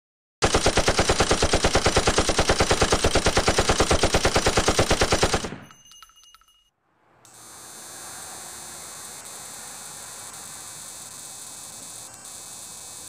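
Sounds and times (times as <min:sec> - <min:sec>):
rapid machine-gun-like fire: 0:00.4 - 0:05.6.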